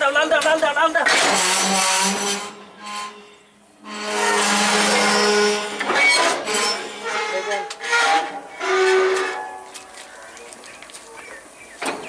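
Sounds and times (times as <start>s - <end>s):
metal clanking and scraping: 1.0s - 9.8s.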